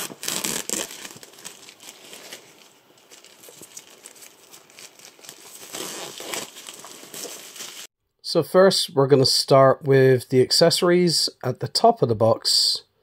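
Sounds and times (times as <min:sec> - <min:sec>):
plastic wrapper crinkling: 0:00.0 - 0:07.9.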